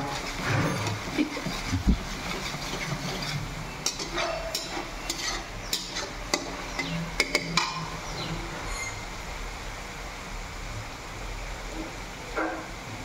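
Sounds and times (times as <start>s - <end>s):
spoon scraping metal pan: 0.0s - 8.0s
light sizzle: 0.0s - 13.0s.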